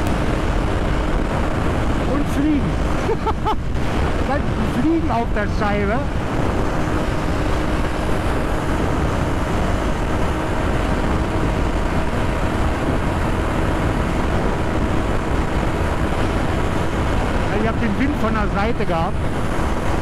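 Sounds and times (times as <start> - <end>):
motorcycle engine cruising: 0.0 - 20.0
wind on microphone: 0.0 - 20.0.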